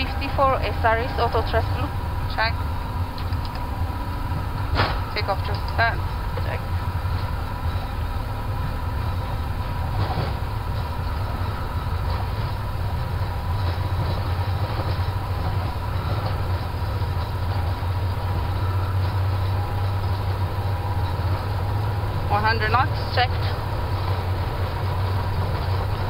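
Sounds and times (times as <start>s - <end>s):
jet engines rumbling: 0.0s - 26.0s
wheels running on runway: 0.0s - 26.0s
knocks and rattles: 0.3s - 26.0s.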